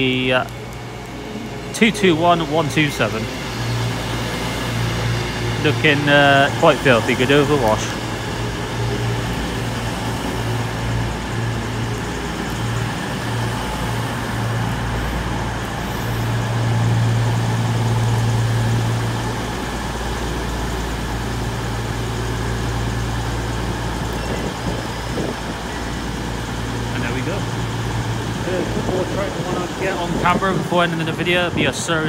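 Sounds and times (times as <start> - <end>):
train diesel engines droning: 0.0 - 32.0.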